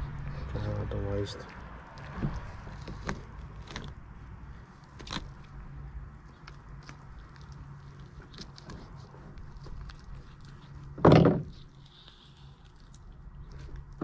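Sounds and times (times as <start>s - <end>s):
wet clicks and tearing of meat: 4.8s - 5.6s, 6.2s - 10.9s, 11.5s - 14.0s.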